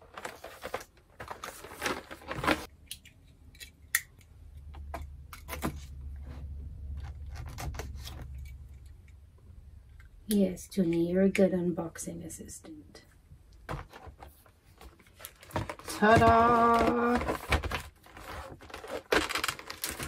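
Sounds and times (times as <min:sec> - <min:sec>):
cardboard packaging rustling: 0:00.0 - 0:02.7, 0:13.7 - 0:20.0.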